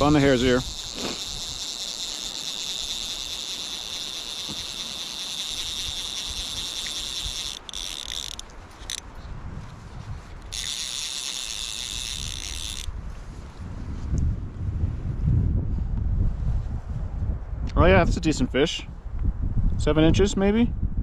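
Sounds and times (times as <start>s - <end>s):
fly reel drag clicking: 0.0s - 9.1s, 10.3s - 13.0s.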